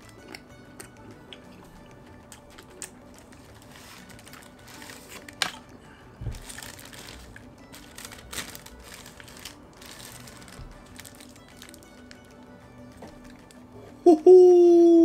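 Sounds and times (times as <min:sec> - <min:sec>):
faint background music: 0:00.0 - 0:15.0
paper wrapper crinkling: 0:02.4 - 0:13.7.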